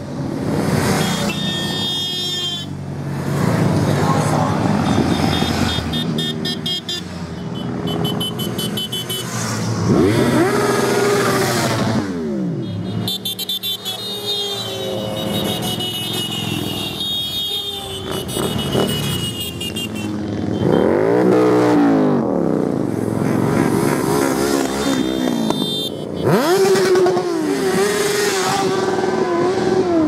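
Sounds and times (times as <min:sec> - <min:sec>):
motorcycles riding past: 0:02.8 - 0:30.0.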